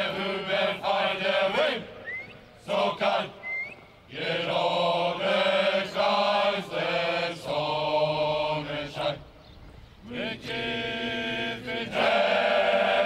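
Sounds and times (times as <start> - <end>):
male chorus singing marching song: 0.0 - 13.0.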